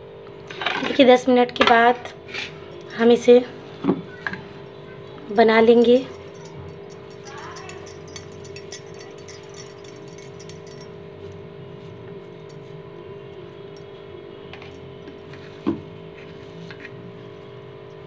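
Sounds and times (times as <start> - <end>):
steady hum: 1.6 - 11.2
jewellery jingling: 1.9 - 3.3, 5.1 - 11.4.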